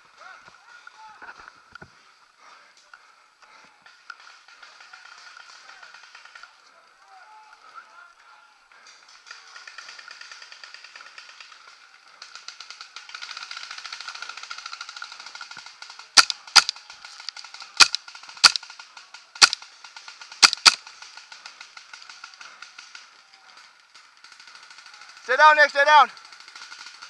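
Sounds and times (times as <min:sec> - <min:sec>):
distant paintball markers crackling: 0:02.8 - 0:27.0
paintball marker shots: 0:16.2 - 0:18.7, 0:19.4 - 0:19.6, 0:20.4 - 0:20.8.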